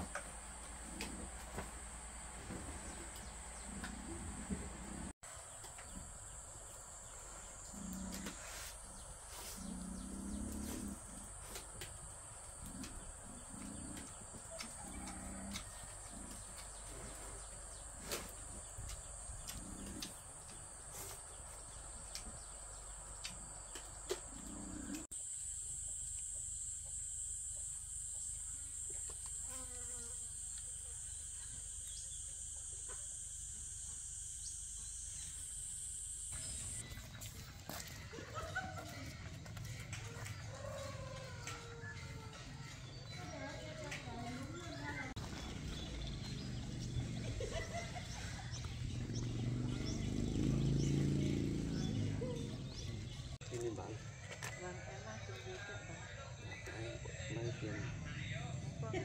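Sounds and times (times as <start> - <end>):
insects droning: 0.0 - 39.2, 39.8 - 59.0.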